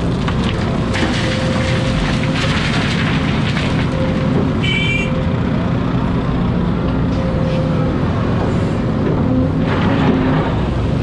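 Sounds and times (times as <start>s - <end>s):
excavator engine and hydraulics: 0.0s - 11.0s
dirt pouring into truck: 0.4s - 4.0s.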